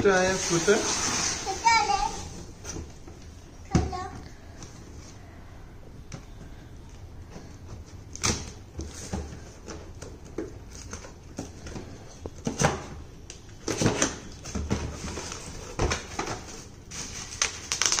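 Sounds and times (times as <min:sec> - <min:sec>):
bubble wrap rustling: 0:00.0 - 0:02.7, 0:13.4 - 0:18.0.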